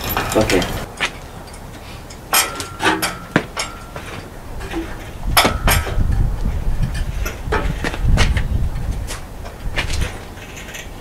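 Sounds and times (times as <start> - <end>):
metal chain clinks and knocks: 0.0 - 8.3.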